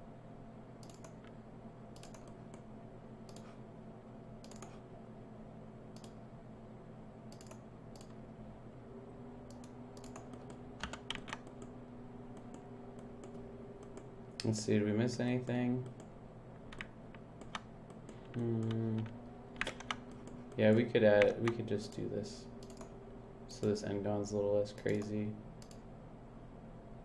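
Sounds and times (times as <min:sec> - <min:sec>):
faint steady hum: 0:00.0 - 0:27.0
keyboard and mouse clicks: 0:00.8 - 0:02.7, 0:03.3 - 0:03.6, 0:04.4 - 0:04.8, 0:06.0 - 0:06.2, 0:07.3 - 0:08.2, 0:09.5 - 0:14.6, 0:15.8 - 0:22.9, 0:24.8 - 0:25.8.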